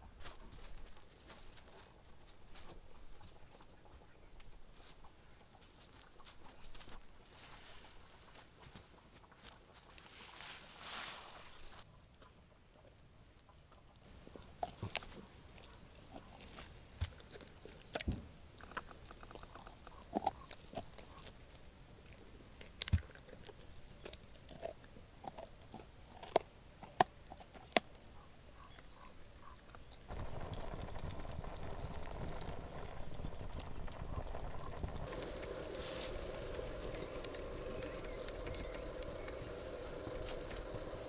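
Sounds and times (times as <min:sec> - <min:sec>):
dog crunching a bone: 0:14.1 - 0:28.1
campfire hissing and crackling: 0:30.1 - 0:41.0.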